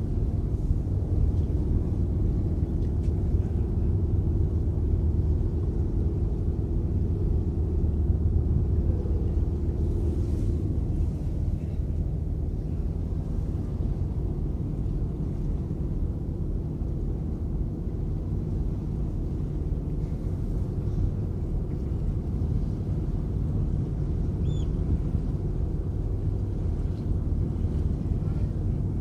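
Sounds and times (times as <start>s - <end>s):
ferry engine drone: 0.0s - 29.0s.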